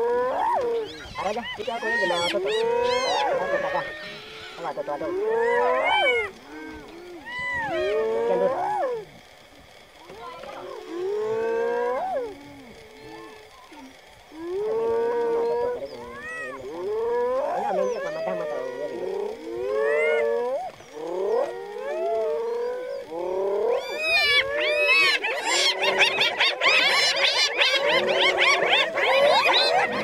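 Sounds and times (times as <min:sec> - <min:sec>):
hyenas yelping and whooping: 0:00.0 - 0:30.0.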